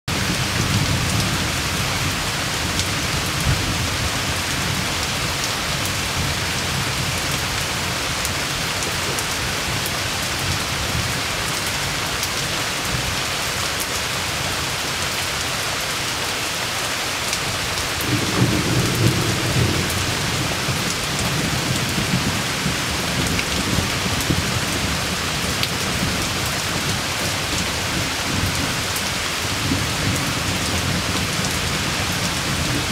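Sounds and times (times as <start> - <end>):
heavy rain on foliage: 0.1 - 32.9
low thunder rumbles: 17.8 - 28.8.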